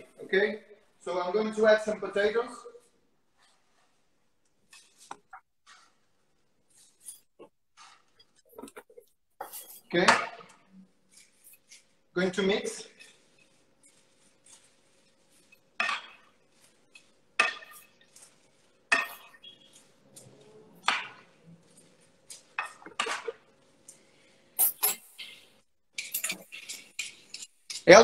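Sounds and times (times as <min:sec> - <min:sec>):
fork and spoon clinking on dish: 0:26.0 - 0:27.8.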